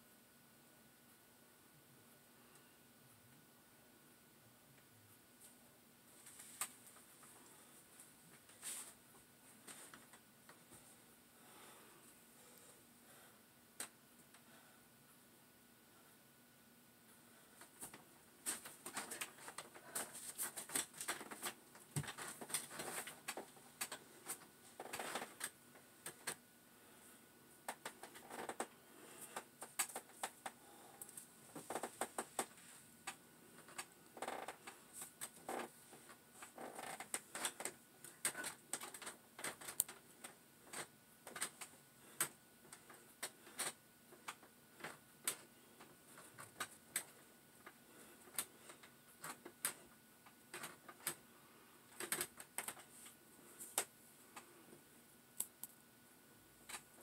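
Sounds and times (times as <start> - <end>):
chair creaking and clicking: 17.6 - 26.4, 27.7 - 51.2, 51.9 - 54.6, 56.6 - 57.0.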